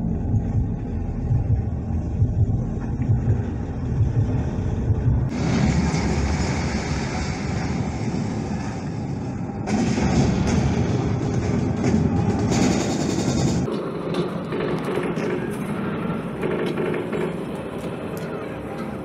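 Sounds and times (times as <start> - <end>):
low engine-like rumble: 0.0 - 19.0
broad rushing noise: 3.7 - 18.6.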